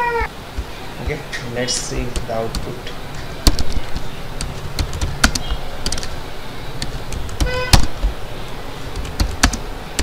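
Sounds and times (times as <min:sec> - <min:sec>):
keyboard key clicks: 0:03.4 - 0:06.1.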